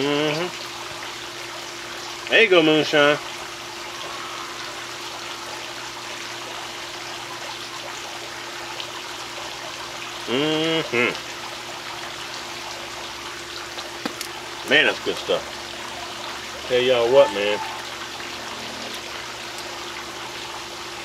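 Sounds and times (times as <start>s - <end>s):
rushing water noise: 0.0s - 21.0s
faint hum: 3.3s - 7.5s
man humming: 10.3s - 11.2s.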